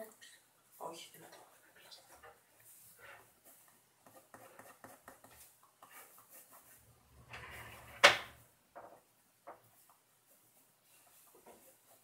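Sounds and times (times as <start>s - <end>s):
pen scratching on paper: 4.0s - 6.8s.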